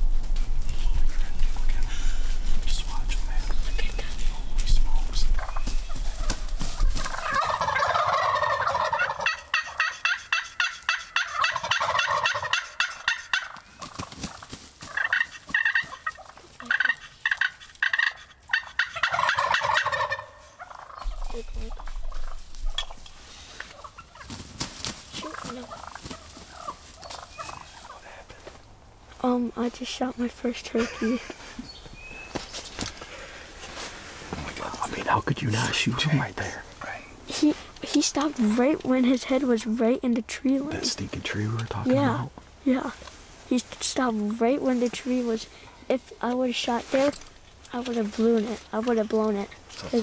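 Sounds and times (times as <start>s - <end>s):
turkeys gobbling: 5.0s - 28.3s.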